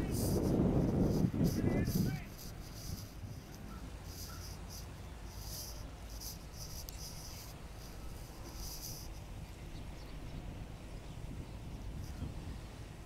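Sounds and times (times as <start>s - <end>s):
insects chirping: 0.0s - 9.3s.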